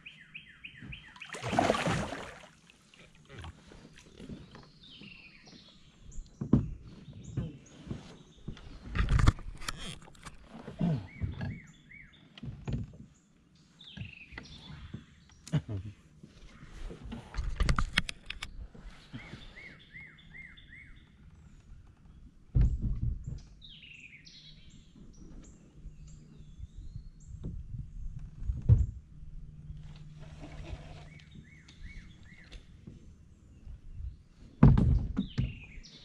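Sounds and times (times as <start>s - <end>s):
songbirds chirping: 0.0s - 36.0s
dull knocks of gear in kayak: 34.6s - 35.8s.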